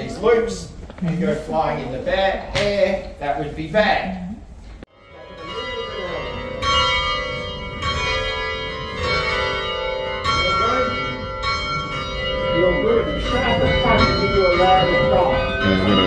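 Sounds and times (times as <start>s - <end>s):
tower bells ringing: 4.9s - 16.0s
faint voices: 13.1s - 16.0s.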